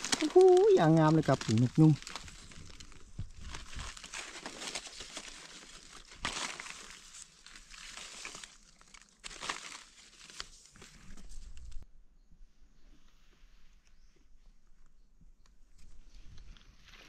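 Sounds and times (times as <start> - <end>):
dry leaves rustling and crackling: 0.0 - 11.8.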